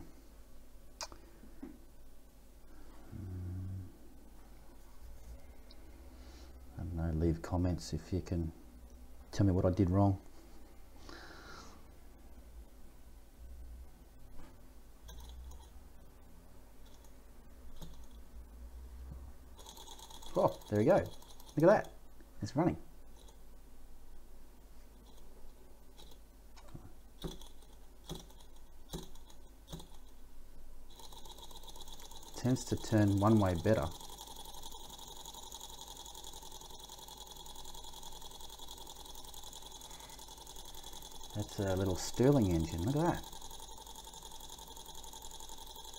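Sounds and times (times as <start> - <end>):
faint clicks and metallic ticks: 15.1 - 15.8, 16.8 - 18.2, 19.5 - 23.4, 25.0 - 30.2, 30.9 - 45.9
model engine mechanical patter: 19.6 - 21.9, 27.2 - 30.1, 30.9 - 45.9.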